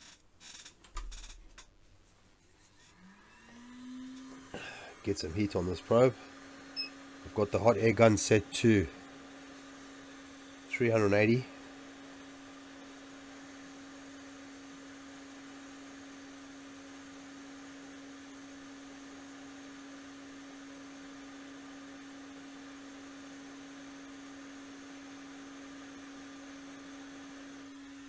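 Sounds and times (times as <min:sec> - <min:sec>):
hot air gun humming: 0:03.4 - 0:15.5.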